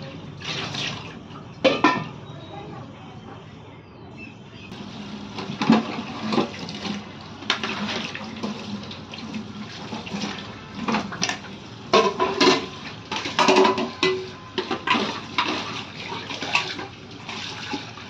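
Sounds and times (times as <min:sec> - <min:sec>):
pots and utensils clanking: 0:00.5 - 0:02.2, 0:04.7 - 0:18.0
tap water running into sink: 0:04.8 - 0:18.0.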